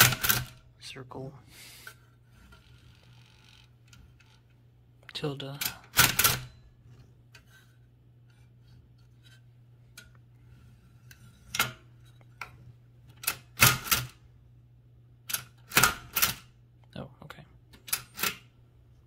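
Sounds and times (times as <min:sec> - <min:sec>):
typewriter mechanism clicks: 0:00.0 - 0:00.6, 0:05.5 - 0:06.5, 0:13.1 - 0:14.2, 0:15.3 - 0:16.5, 0:17.7 - 0:18.5
typewriter type strikes: 0:00.0 - 0:00.6, 0:05.6 - 0:06.6, 0:13.2 - 0:14.1.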